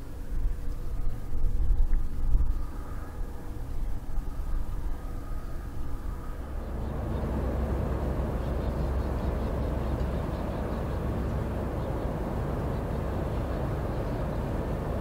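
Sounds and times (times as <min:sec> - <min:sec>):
wind and water noise: 0:00.0 - 0:15.0
ship engine rumble: 0:06.2 - 0:15.0.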